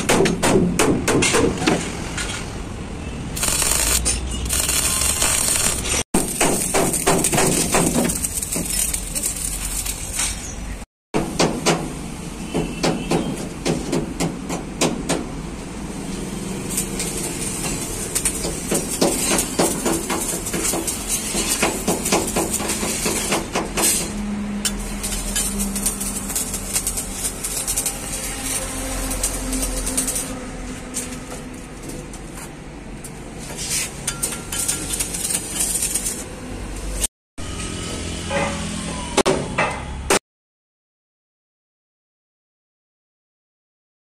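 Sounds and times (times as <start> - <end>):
crackling welding arc: 3.4 - 10.3, 16.3 - 30.4, 34.6 - 37.0.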